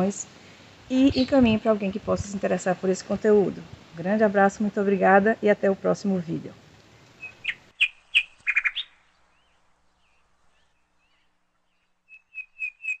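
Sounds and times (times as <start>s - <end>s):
birds chirping: 0.9s - 2.4s, 6.9s - 13.0s
bird whistled notes: 7.2s - 9.0s, 12.1s - 13.0s.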